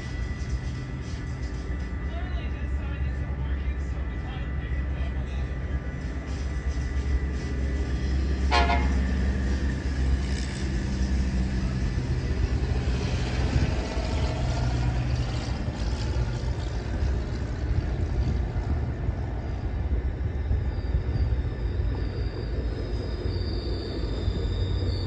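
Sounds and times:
low train rumble: 0:00.0 - 0:25.0
train horn: 0:08.4 - 0:09.2.

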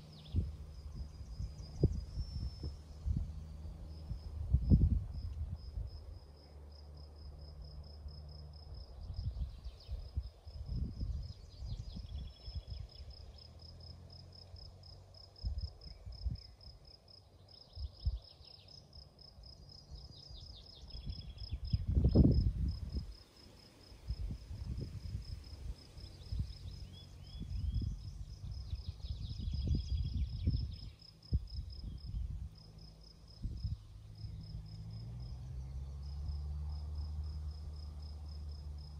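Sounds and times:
low rumbling microphone noise: 0:00.0 - 0:06.8, 0:20.9 - 0:23.2
insect chirping: 0:00.0 - 0:38.9.

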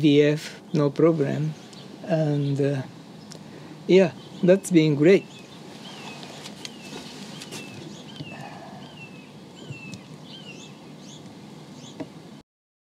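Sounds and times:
small bird chirping: 0:00.7 - 0:12.0.

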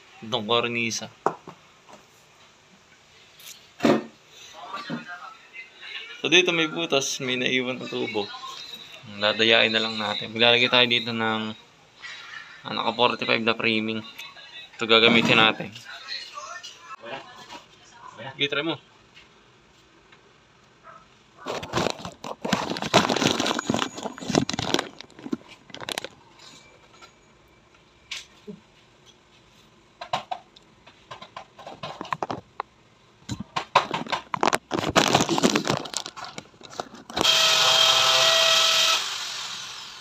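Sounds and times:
plastic wall panel crackling: 0:21.4 - 0:26.2, 0:33.4 - 0:37.2
power drill whining: 0:37.1 - 0:40.0.

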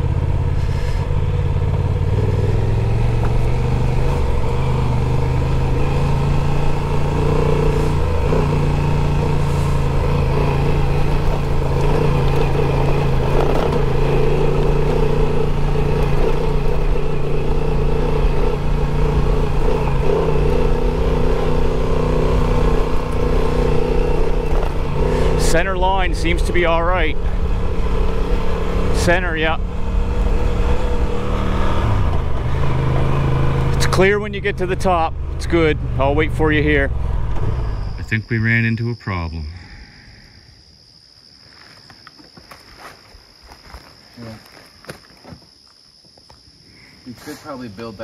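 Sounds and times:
motorcycle engine running: 0:00.0 - 0:38.2.

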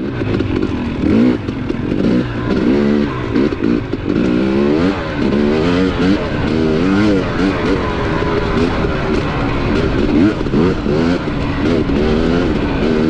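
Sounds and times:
dirt bike engine revving: 0:00.0 - 0:13.0.

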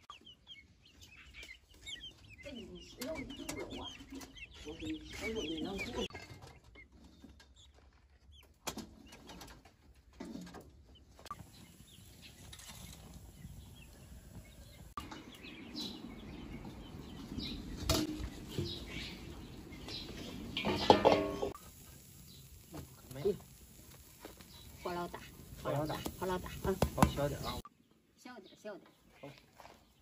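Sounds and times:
wood fire crackling: 0:18.0 - 0:27.6
loud metallic clatter: 0:20.6 - 0:21.6
guinea fowl flapping wings: 0:25.1 - 0:27.6.

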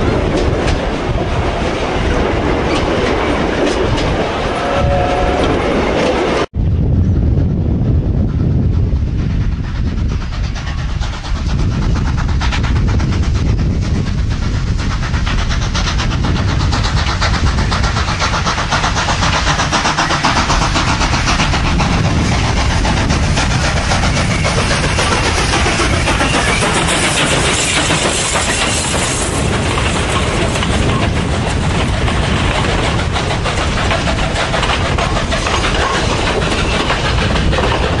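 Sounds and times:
heavy low train rumble: 0:00.0 - 0:38.0
steam locomotive chuffing: 0:07.6 - 0:38.0.

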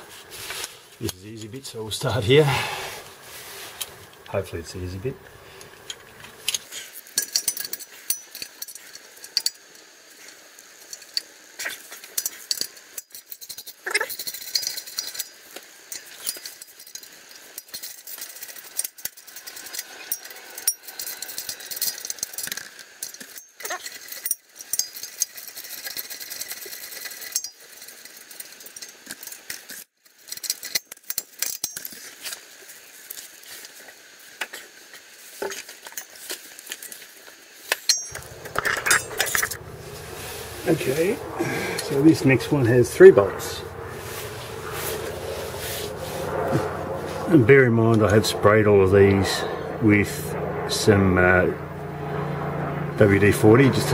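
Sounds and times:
metal clinks and knocks: 0:05.8 - 0:09.8, 0:11.9 - 0:32.1, 0:37.7 - 0:41.0.

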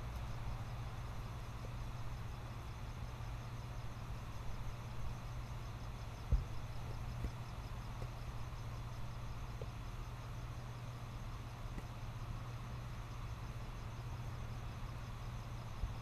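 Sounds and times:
constant hiss: 0:00.0 - 0:16.0.

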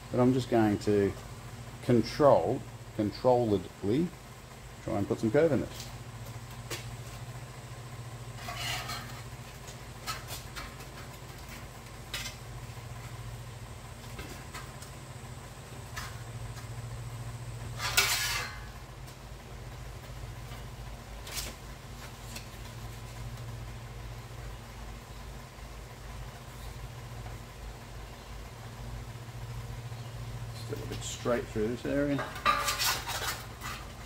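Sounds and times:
steady low hum: 0:00.0 - 0:34.0
sheet steel scraping on pipes: 0:08.4 - 0:09.3, 0:17.7 - 0:18.8, 0:32.2 - 0:34.0.

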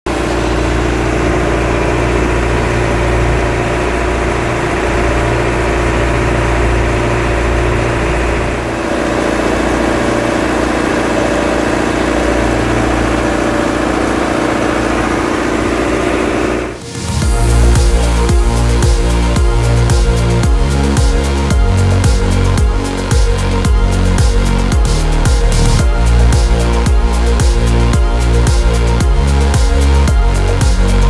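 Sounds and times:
boat engine running: 0:00.0 - 0:31.0.

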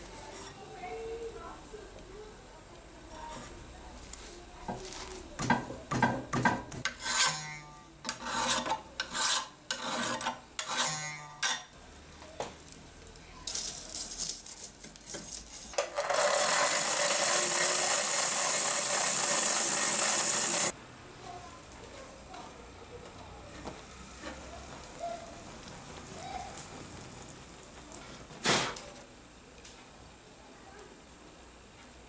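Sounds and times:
wood scraping against steel: 0:06.8 - 0:11.7, 0:14.4 - 0:20.7
forge rushing hiss: 0:16.2 - 0:20.7.

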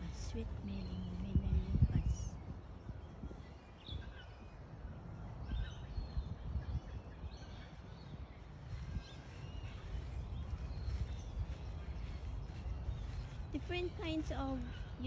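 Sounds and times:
birds chirping: 0:00.0 - 0:15.0
steady low rumble: 0:00.0 - 0:15.0.

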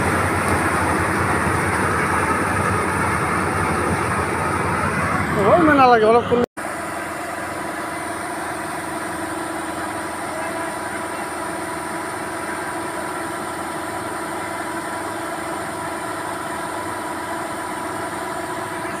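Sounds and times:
combine harvester humming: 0:00.0 - 0:19.0.

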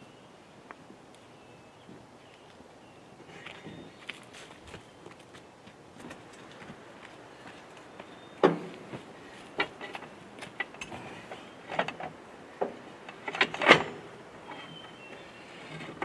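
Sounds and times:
metal knocks clunks and scrapes: 0:08.4 - 0:16.0.

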